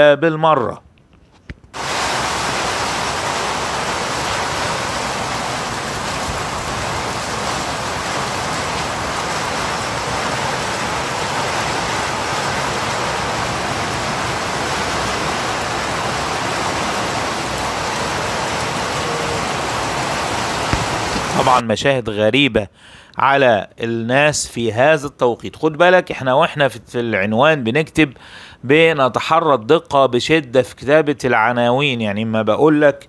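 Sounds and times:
heavy rain pouring: 1.8s - 21.6s.

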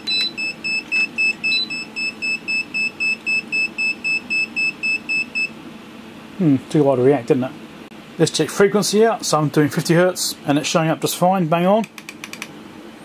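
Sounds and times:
multimeter warning beeper beeping: 0.0s - 5.6s.

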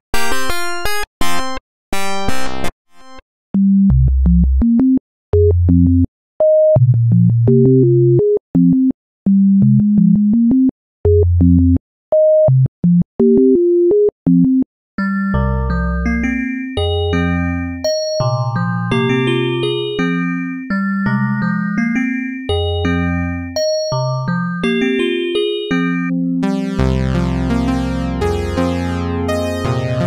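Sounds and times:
bright plucked synth notes: 15.4s - 26.8s.

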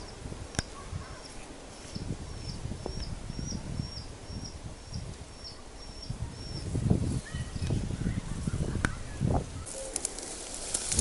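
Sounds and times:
low rustle: 9.4s - 11.0s.

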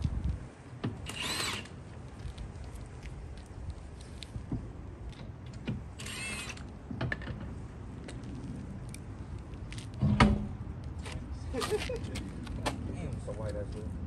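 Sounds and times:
impact gun whirring: 1.0s - 1.8s, 6.0s - 6.6s.

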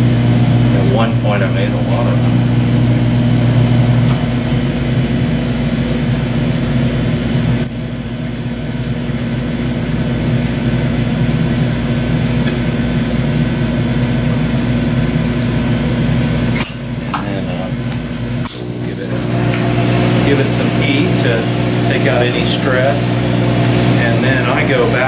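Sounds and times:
gas burners humming and hissing: 0.0s - 25.0s.

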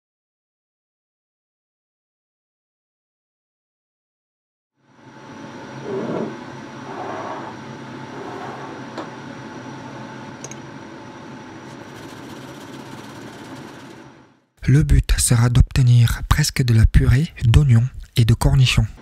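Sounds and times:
steady background hum: 4.8s - 19.0s.

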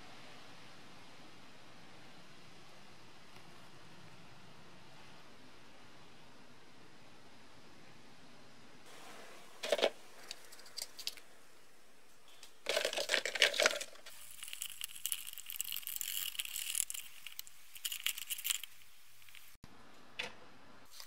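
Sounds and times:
rattle of parts being handled: 9.6s - 11.3s, 12.4s - 19.6s.

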